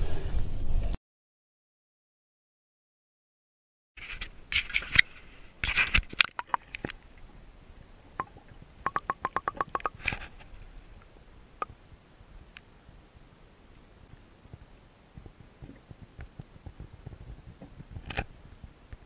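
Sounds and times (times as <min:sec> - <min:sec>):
water splashing underwater: 0:06.0 - 0:07.0, 0:08.2 - 0:10.0
sharp ticks: 0:08.9 - 0:10.0.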